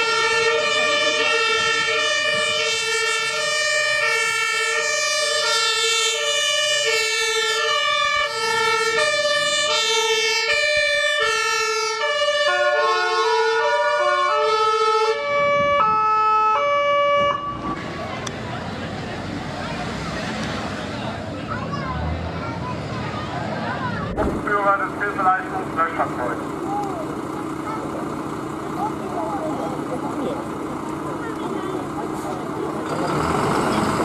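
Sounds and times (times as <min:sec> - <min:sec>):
second two-tone siren: 0:00.0 - 0:17.8
two-tone emergency siren: 0:00.0 - 0:17.8.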